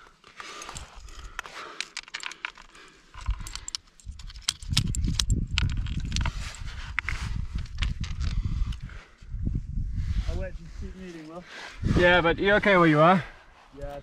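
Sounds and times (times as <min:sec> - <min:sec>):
climbing gear clinking: 0:00.0 - 0:09.0.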